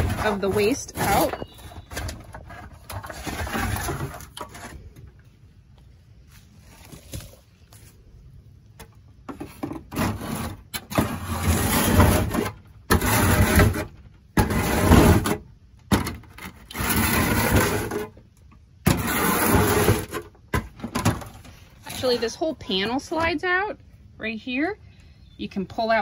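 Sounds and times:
shovel scraping coop floor: 0.0s - 5.2s, 9.3s - 18.2s, 18.8s - 23.3s.

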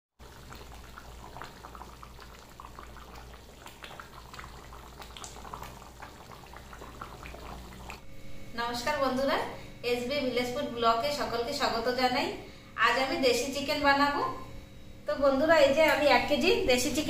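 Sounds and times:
curry bubbling in a pot: 0.2s - 8.0s
steady low hum: 0.2s - 17.0s.

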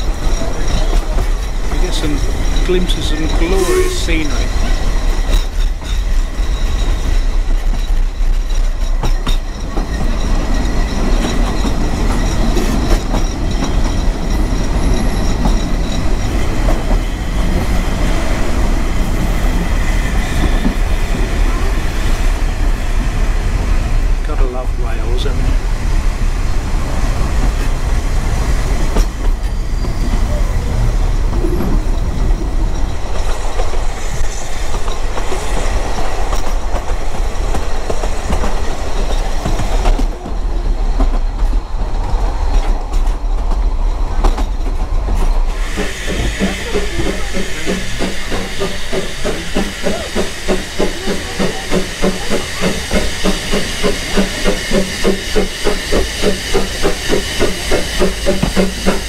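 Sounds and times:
train wheels clattering on rails: 0.0s - 59.0s
hiss: 45.1s - 59.0s.

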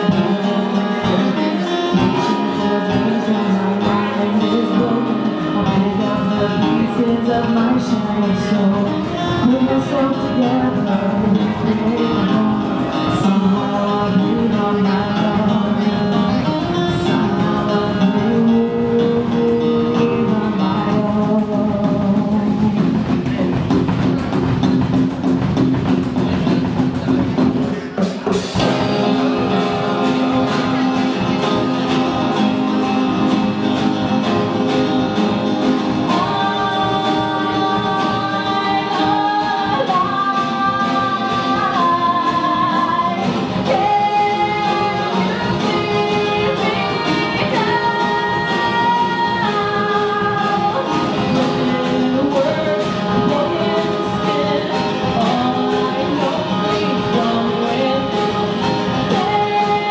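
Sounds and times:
woman singing: 0.0s - 23.2s, 28.6s - 59.9s
strummed acoustic guitar: 0.0s - 59.9s.

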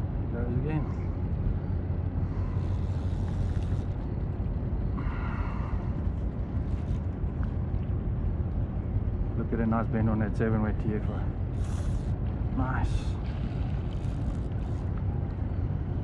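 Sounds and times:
high whirring: 2.2s - 4.5s, 11.5s - 12.2s.

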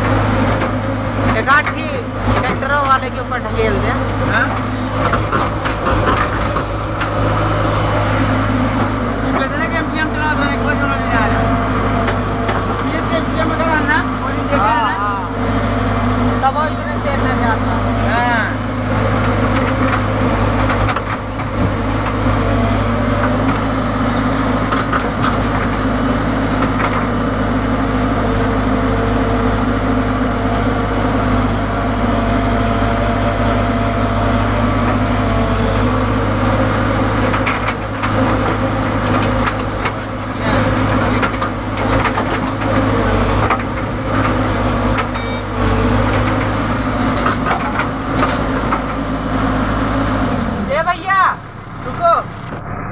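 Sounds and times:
machine knocks and clatter: 0.0s - 7.5s, 11.9s - 13.9s, 19.1s - 27.4s, 36.5s - 49.1s
diesel engine running under load: 0.0s - 52.9s.

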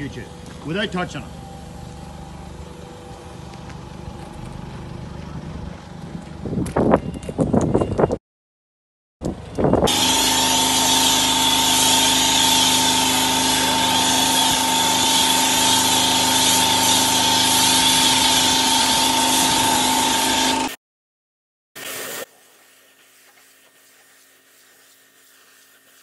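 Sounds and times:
pressure washer motor hum: 0.0s - 6.5s, 9.3s - 20.8s.

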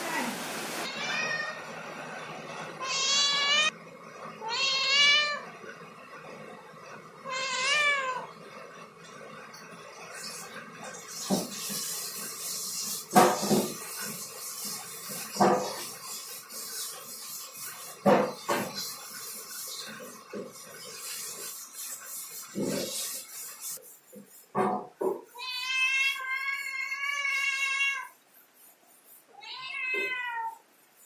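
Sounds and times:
young cat meowing: 29.4s - 30.6s.

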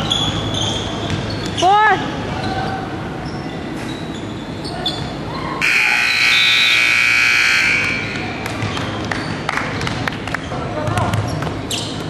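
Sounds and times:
scoreboard buzzer: 5.6s - 8.2s.

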